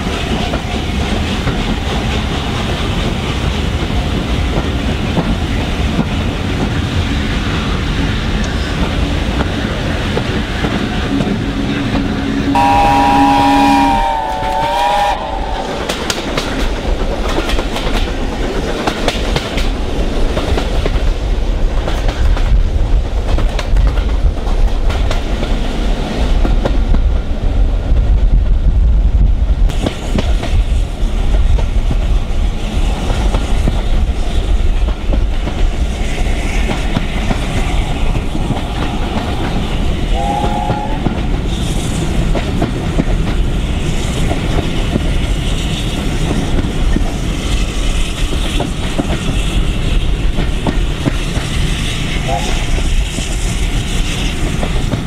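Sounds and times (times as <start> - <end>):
train wheels clattering over rail joints: 0.0 - 12.2, 15.8 - 27.3, 29.7 - 55.0
steam locomotives rumbling: 0.0 - 55.0
brief tone: 12.3 - 14.0.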